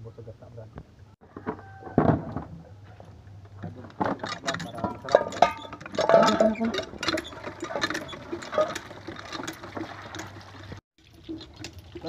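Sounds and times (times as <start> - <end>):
splashes and clicks: 4.2 - 12.0
water running into plastic basin: 6.0 - 12.0.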